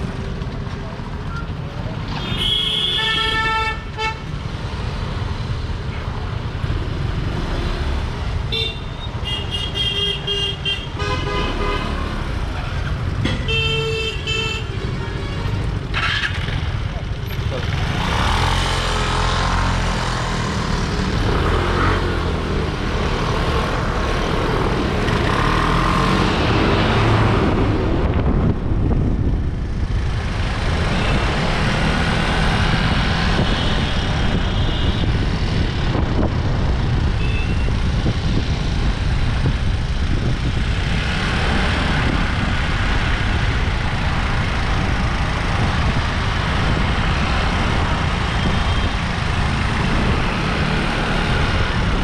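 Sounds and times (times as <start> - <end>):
wind rush on microphone: 26.3 - 52.0.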